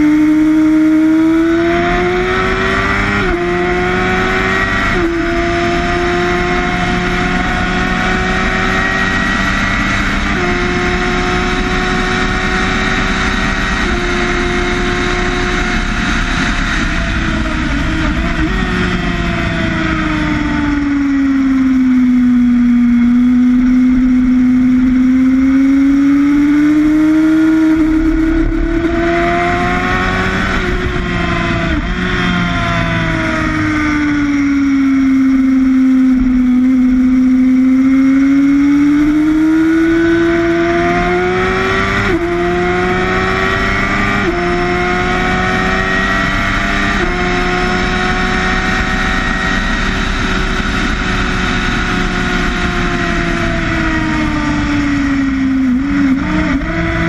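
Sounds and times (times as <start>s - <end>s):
motorcycle engine revving: 0.0s - 57.0s
wind rush: 26.0s - 33.6s.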